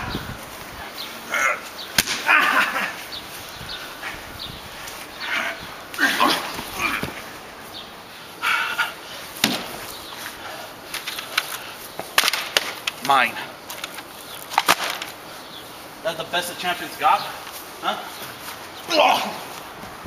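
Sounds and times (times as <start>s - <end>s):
men shouting and groaning: 1.2s - 3.2s, 5.2s - 7.3s, 17.3s - 19.6s
wooden bat hits: 2.0s - 2.4s, 9.4s - 9.8s.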